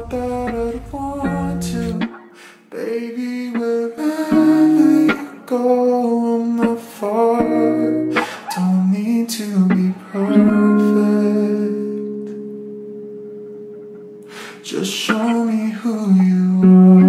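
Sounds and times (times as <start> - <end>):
guitar chord ringing: 0.0 - 2.4, 3.6 - 17.0
guitar song: 0.0 - 17.0.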